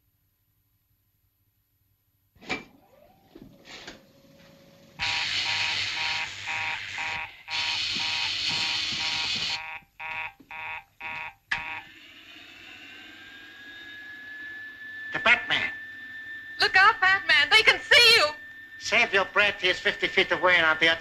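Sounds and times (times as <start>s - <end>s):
quiet hum: 0.0s - 21.0s
high whine rising in pitch: 4.5s - 21.0s
electric buzzer: 5.0s - 21.0s.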